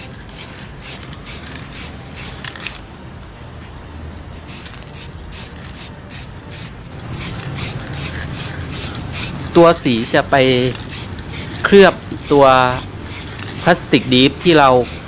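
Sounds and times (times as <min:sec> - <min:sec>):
spray paint can hissing: 0:00.0 - 0:02.8, 0:04.5 - 0:15.0.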